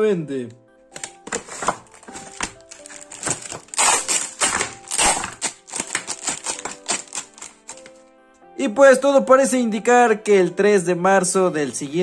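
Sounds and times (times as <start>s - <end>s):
background music: 0.0s - 12.0s
packaging being opened: 0.9s - 8.0s.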